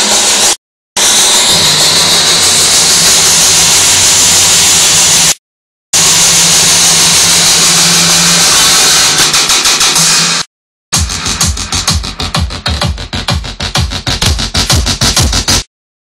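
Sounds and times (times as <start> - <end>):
distorted loud music: 0.0 - 5.2, 6.0 - 15.7
steady bass note: 11.0 - 15.6.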